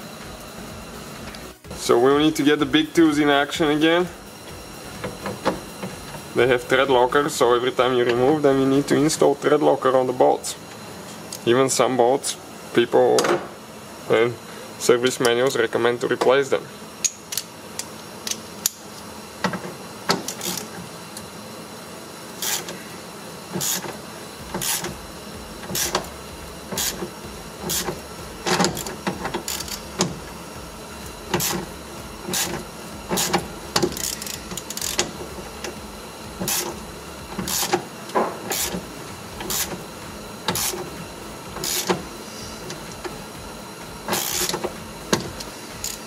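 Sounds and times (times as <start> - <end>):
hand ratchet clicking and grating: 19.5 - 20.8, 22.4 - 22.8, 23.5 - 25.0, 25.6 - 30.3, 31.3 - 35.8, 36.4 - 43.2, 44.0 - 46.0.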